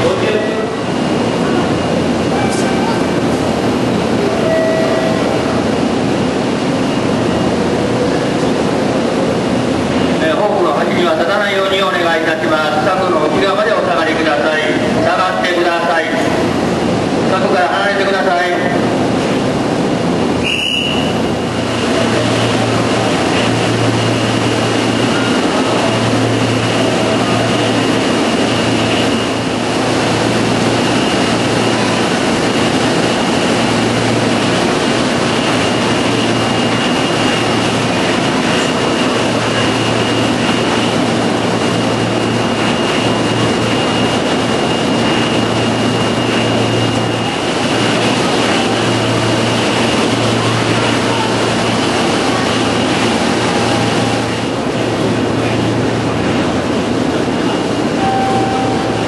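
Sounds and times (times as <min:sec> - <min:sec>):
train motor hum and rolling noise: 0:00.0 - 0:59.0
thin high tone: 0:04.3 - 0:05.4, 0:57.9 - 0:59.0
short sharp high sound: 0:58.0 - 0:59.0.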